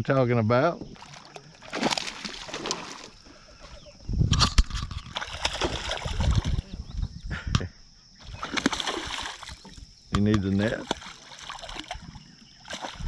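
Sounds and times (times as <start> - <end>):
fish splashing in water: 1.0 - 3.2, 5.1 - 6.6, 8.2 - 9.8, 10.5 - 13.0.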